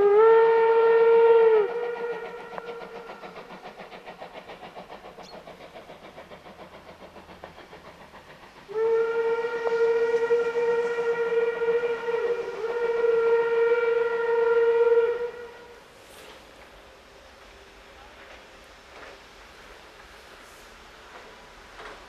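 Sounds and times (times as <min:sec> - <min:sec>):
steam whistle: 0:00.0 - 0:03.5, 0:08.7 - 0:16.4
steam locomotive exhaust chuffs: 0:00.0 - 0:22.0.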